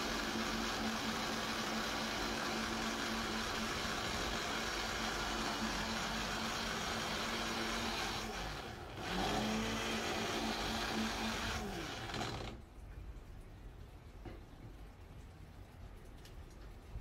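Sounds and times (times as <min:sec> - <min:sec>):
electric blender running: 0:00.0 - 0:12.6.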